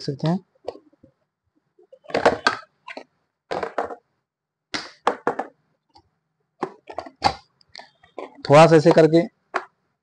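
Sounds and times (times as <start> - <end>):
plastic parts clicking and knocking: 1.8 - 4.1, 4.7 - 9.8.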